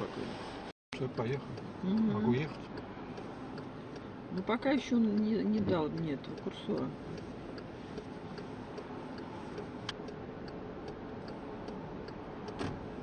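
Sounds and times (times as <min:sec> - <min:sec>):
idling car hum: 0:00.0 - 0:13.0
car indicator ticking: 0:00.9 - 0:13.0.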